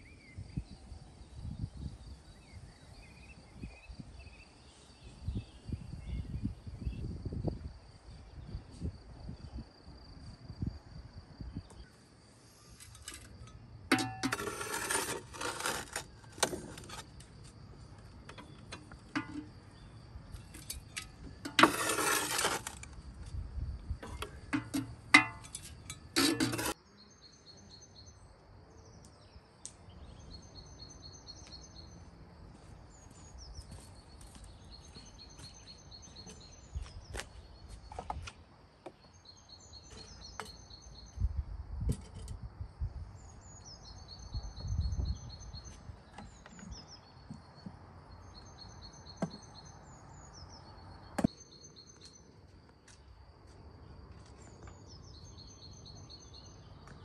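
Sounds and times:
kitchen utensils and dishes clinking: 0:24.1 - 0:26.8.

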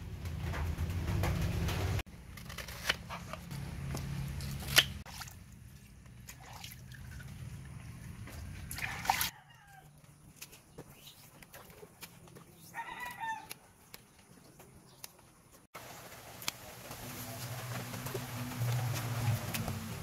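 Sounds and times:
water trickling and splashing: 0:04.3 - 0:09.4, 0:10.2 - 0:12.8, 0:15.8 - 0:20.0.

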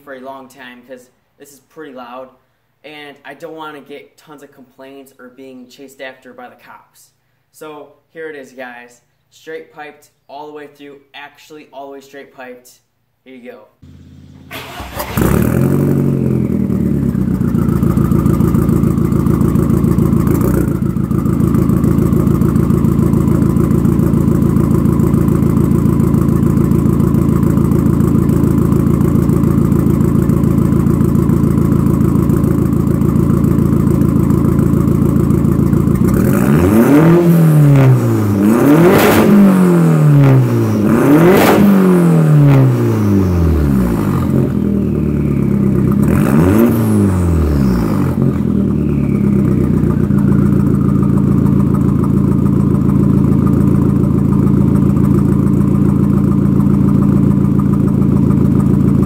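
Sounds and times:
engine revving in quick blips: 0:13.8 - 0:18.0, 0:36.0 - 0:51.3
car engine idling loudly: 0:13.8 - 0:36.6, 0:42.7 - 0:59.0.

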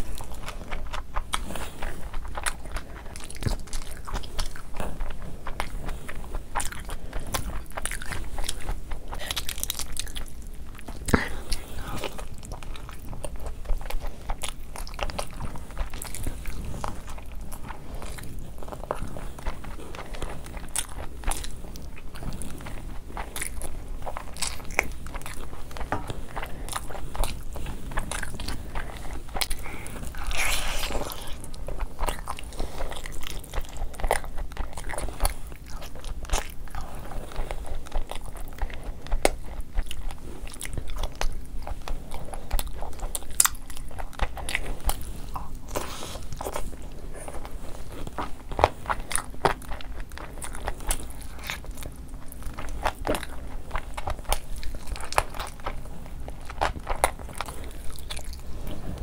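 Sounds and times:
wet chewing of food: 0:00.0 - 0:59.0.

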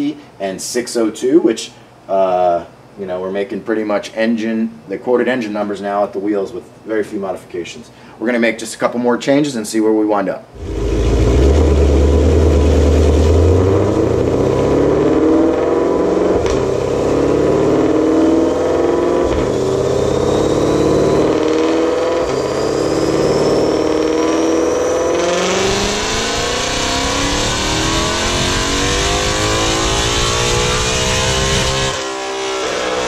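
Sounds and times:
loud rushing noise: 0:10.6 - 0:15.2
car engine revving: 0:10.6 - 0:33.0
supercharger whine: 0:10.6 - 0:33.0.

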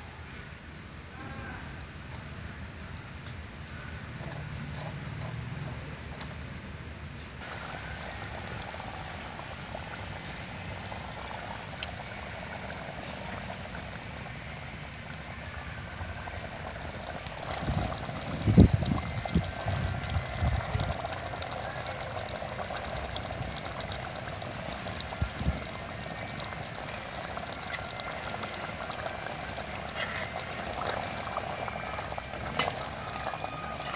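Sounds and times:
curry boiling in a pot: 0:07.4 - 0:33.9.

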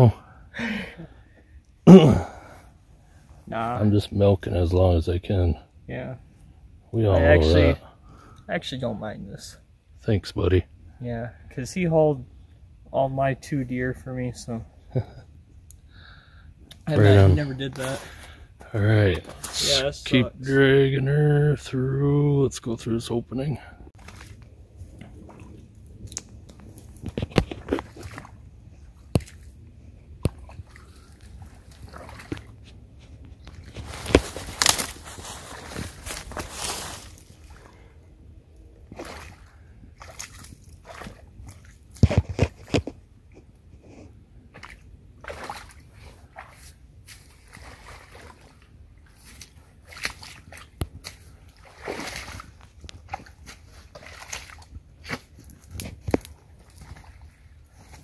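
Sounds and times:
boots sloshing through water: 0:24.0 - 0:37.9, 0:38.8 - 0:42.8, 0:44.5 - 0:58.0
footsteps crunching through wet snow: 0:30.8 - 0:37.6
twigs snapping: 0:33.5 - 0:37.0.

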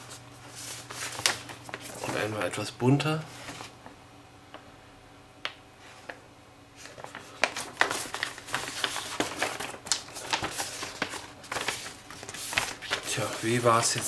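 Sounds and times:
paper rustling and crinkling: 0:00.0 - 0:02.4, 0:03.3 - 0:03.8, 0:06.8 - 0:14.0.

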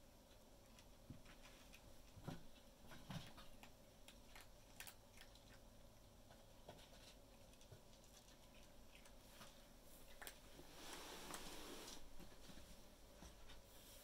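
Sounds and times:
kittens' paws on wooden floor: 0:00.7 - 0:05.6, 0:06.2 - 0:14.0.

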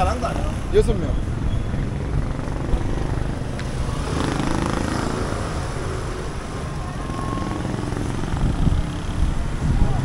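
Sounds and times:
low traffic rumble: 0:00.0 - 0:10.0
motorcycle engine running: 0:01.9 - 0:05.8.

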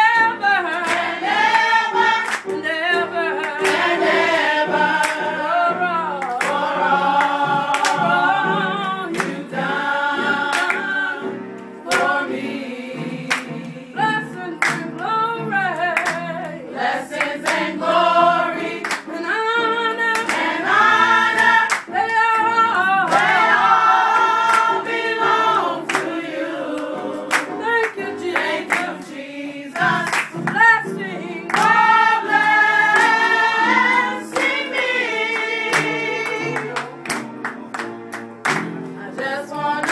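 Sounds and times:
group singing gospel song: 0:00.0 - 0:39.9
hand-clapping: 0:00.7 - 0:02.6, 0:03.4 - 0:05.4, 0:06.1 - 0:08.2, 0:08.8 - 0:09.6, 0:10.4 - 0:11.0, 0:11.9 - 0:12.4, 0:13.2 - 0:13.7, 0:14.6 - 0:15.0, 0:15.8 - 0:17.8, 0:18.6 - 0:19.2, 0:20.0 - 0:22.4, 0:23.1 - 0:25.1, 0:25.9 - 0:28.9, 0:29.8 - 0:30.7, 0:31.5 - 0:39.9.

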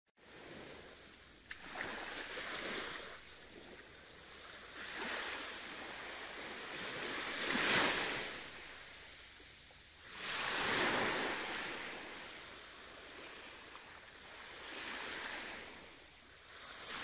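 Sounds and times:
sea waves washing ashore: 0:00.2 - 0:17.0
small click: 0:01.4 - 0:01.6.

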